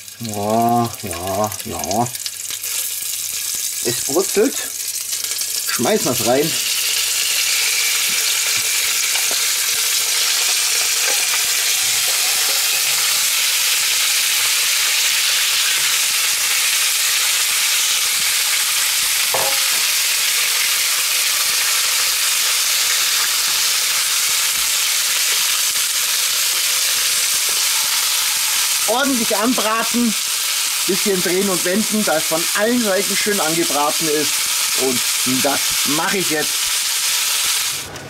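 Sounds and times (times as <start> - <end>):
meat sizzling in a pot: 0.0 - 38.0
meat knocking into pot: 19.4 - 20.0.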